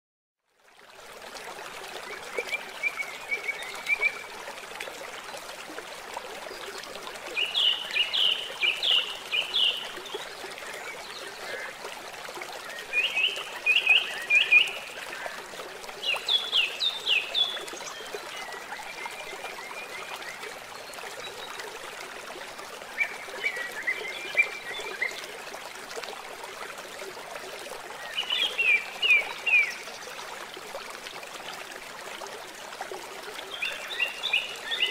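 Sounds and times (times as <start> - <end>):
running water: 0.4 - 34.9
songbird singing: 12.7 - 15.3.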